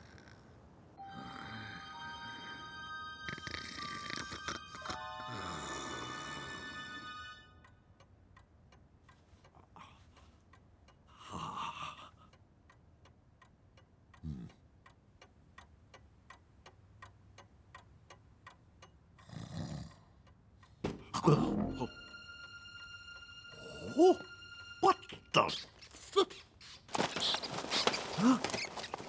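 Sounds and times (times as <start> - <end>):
clock ticking: 7.6 - 26.6.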